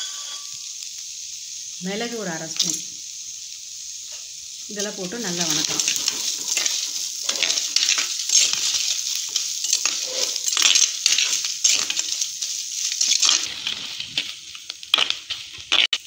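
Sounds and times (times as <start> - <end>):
food sizzling in hot oil: 0.0 - 16.0
metal spatula scraping a pot: 5.5 - 14.3.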